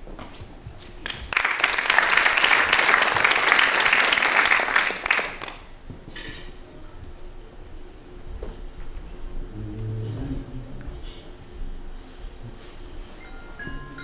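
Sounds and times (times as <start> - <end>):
audience applauding: 1.0 - 5.7.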